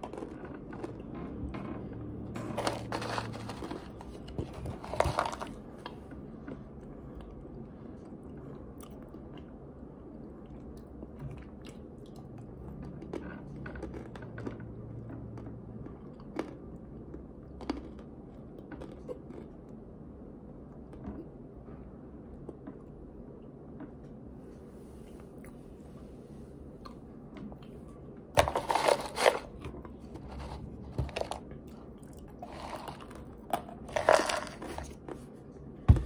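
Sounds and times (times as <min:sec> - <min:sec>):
soft crunches and clicks: 0:02.5 - 0:06.0.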